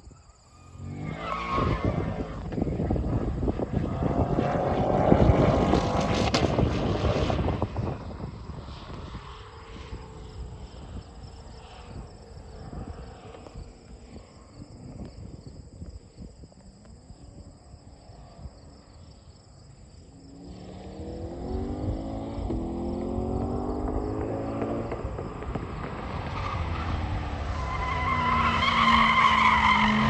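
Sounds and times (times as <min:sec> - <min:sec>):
wind rumble: 0:00.0 - 0:30.0
car accelerating: 0:00.6 - 0:14.6, 0:20.1 - 0:30.0.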